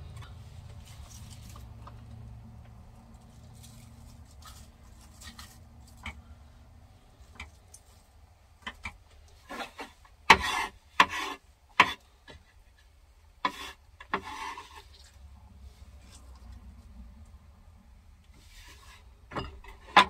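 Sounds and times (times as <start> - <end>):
knife scraping cutting board: 9.4 - 12.0, 13.4 - 15.1.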